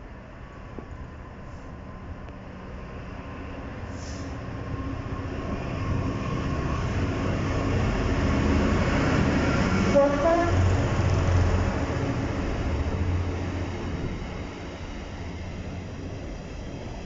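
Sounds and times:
diesel locomotive engine rumble: 0.0s - 17.0s
freight train passing: 0.0s - 17.0s.

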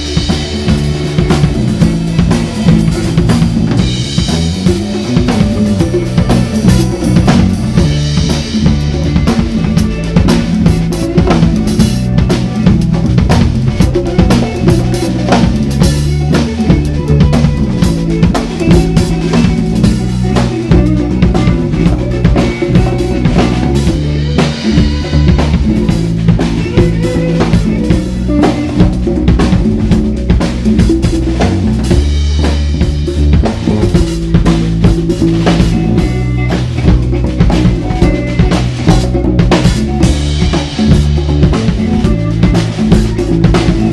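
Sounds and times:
bass line: 0.0s - 43.9s
congas: 0.0s - 43.9s
drum kit: 0.0s - 43.9s
electric guitar: 0.0s - 43.9s.

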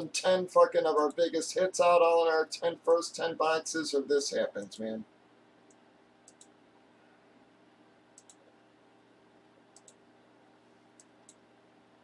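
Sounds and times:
computer mouse clicks: 5.6s - 6.6s, 8.2s - 8.4s, 9.7s - 10.0s, 11.0s - 11.4s.

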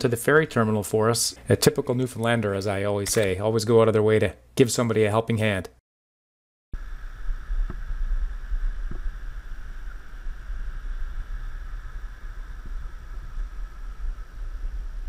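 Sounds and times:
wind buffeting microphone: 6.8s - 15.0s.

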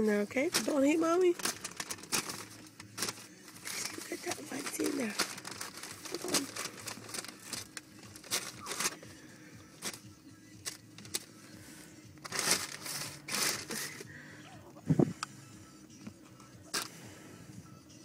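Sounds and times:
paper bag rustling and crinkling: 0.1s - 9.1s, 9.8s - 10.0s, 12.2s - 14.1s.

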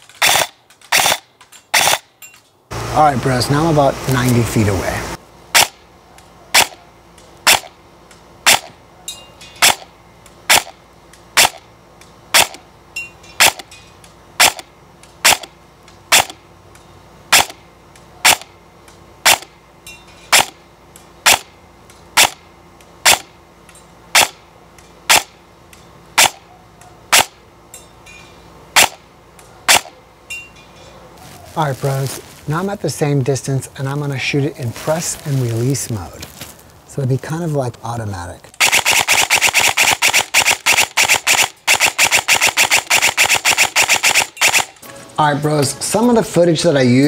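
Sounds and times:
airsoft gun firing: 0.2s - 2.1s, 5.5s - 5.8s, 6.5s - 6.8s, 7.4s - 7.8s, 8.4s - 8.8s, 9.6s - 9.9s, 10.5s - 10.8s, 11.4s - 11.6s, 12.3s - 12.6s, 13.4s - 13.6s, 14.4s - 15.5s, 16.1s - 16.4s, 17.3s - 17.6s, 18.2s - 18.5s, 19.2s - 19.5s, 20.3s - 20.6s, 21.2s - 21.5s, 22.2s - 22.4s, 23.0s - 23.3s, 24.1s - 24.4s, 25.1s - 25.4s, 26.2s - 26.4s, 27.1s - 27.4s, 28.8s - 29.0s, 29.7s - 29.9s, 38.6s - 44.8s.

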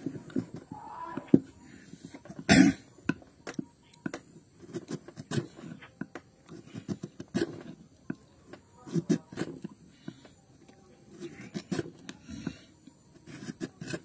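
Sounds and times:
carving gouge cutting wood: 4.6s - 9.7s, 11.1s - 14.0s.

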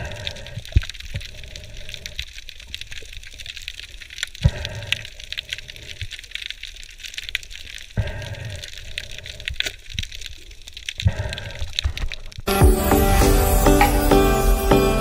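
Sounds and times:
underwater crackle of clicks: 0.0s - 12.5s.

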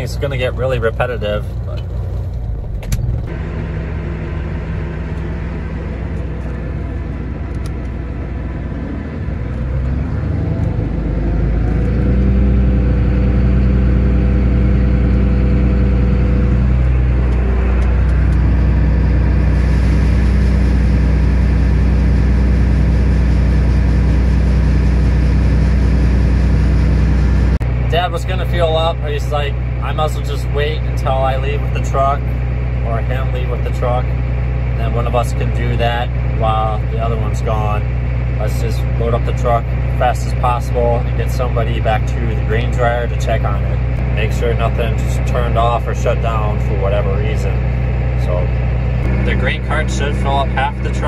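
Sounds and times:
tractor diesel engine revving: 0.0s - 51.0s
grain auger running: 3.3s - 51.0s.

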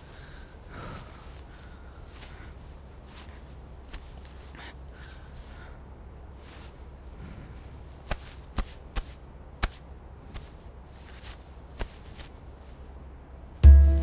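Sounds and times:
film music with deep note: 13.6s - 14.0s.

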